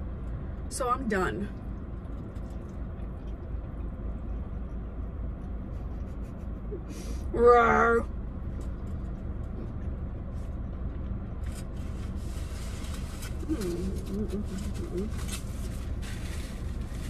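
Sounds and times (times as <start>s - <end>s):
low hum in car cabin: 0.0s - 17.0s
food wrapping crackling: 11.8s - 17.0s.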